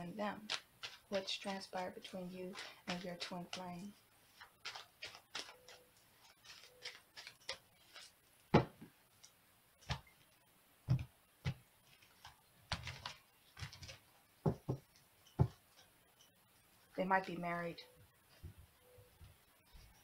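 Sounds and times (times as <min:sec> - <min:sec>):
cards rustling: 0:00.3 - 0:10.4, 0:11.4 - 0:14.1.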